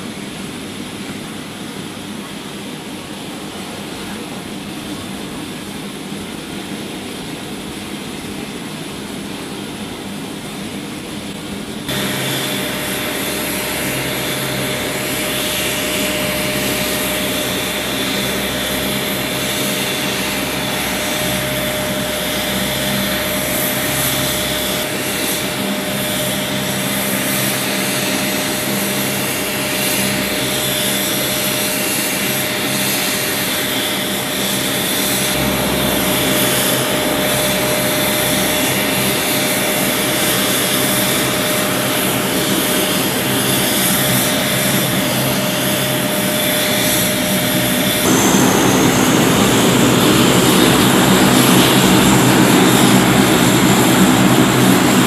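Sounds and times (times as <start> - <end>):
turboprop aircraft engines whining: 0.0 - 55.0.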